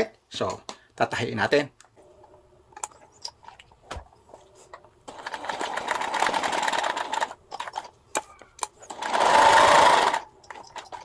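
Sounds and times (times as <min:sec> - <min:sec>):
sewing machine stitching: 0:05.1 - 0:07.9, 0:08.8 - 0:11.0.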